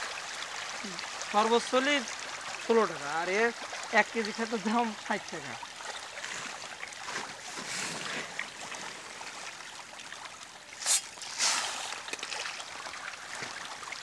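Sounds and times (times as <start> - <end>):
fish splashing at water surface: 5.6 - 14.0
loud sharp splashes: 10.7 - 13.9.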